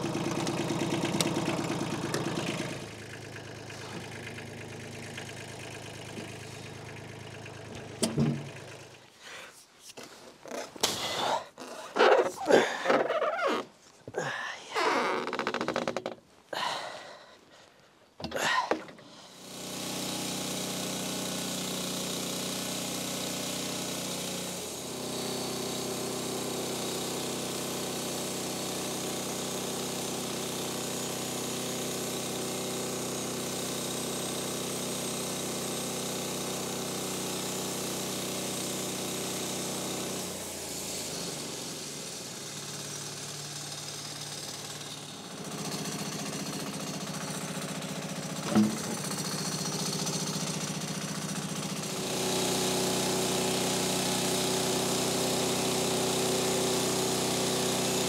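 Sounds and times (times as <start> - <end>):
bandsaw cutting timber: 0.0 - 9.4, 19.4 - 58.0.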